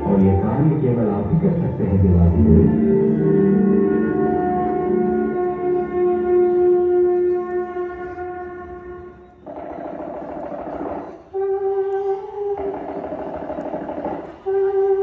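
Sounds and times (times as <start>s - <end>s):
sustained horn-like note: 2.0s - 9.2s.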